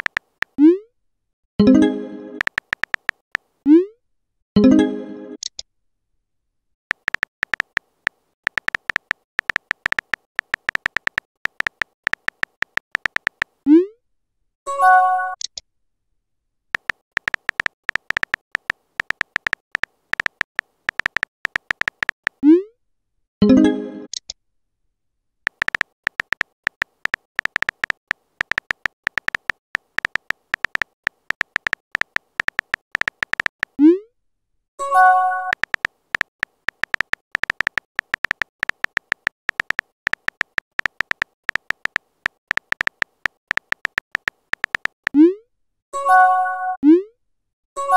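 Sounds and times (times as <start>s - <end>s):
phone keyboard clicks: 0.0s - 0.6s, 2.4s - 3.5s, 6.9s - 13.6s, 16.8s - 22.4s, 25.5s - 33.8s, 35.4s - 45.2s.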